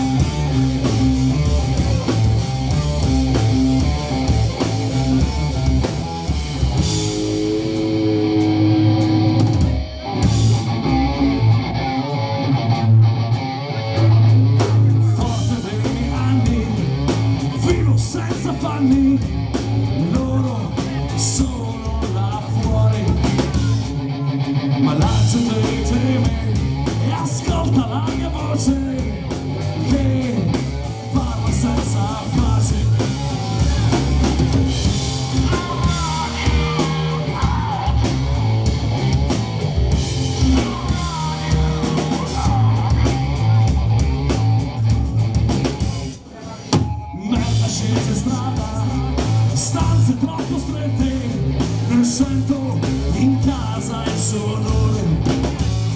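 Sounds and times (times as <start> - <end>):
live rock band playing: 0.0 - 55.9
person singing: 13.7 - 34.4, 35.3 - 38.5, 40.4 - 44.0, 46.3 - 55.5.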